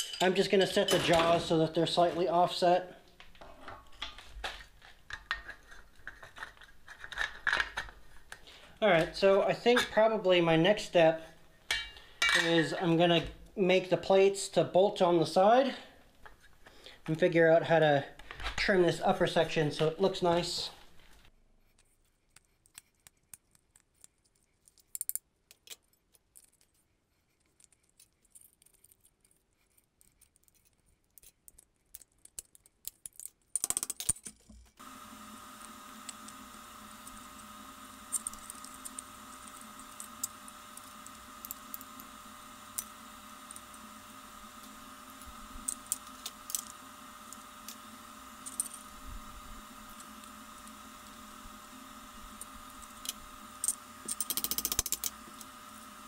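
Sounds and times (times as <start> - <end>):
steady hum: 34.8 - 56.0
tin snips cutting steel: 35.6 - 42.1, 52.3 - 55.5.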